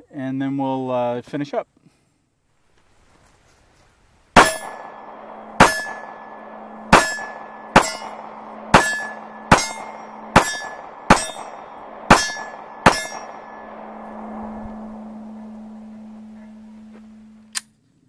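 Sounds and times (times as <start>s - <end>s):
pistol shots: 4.4s - 14.9s
short ringing tone: 4.4s - 17.5s.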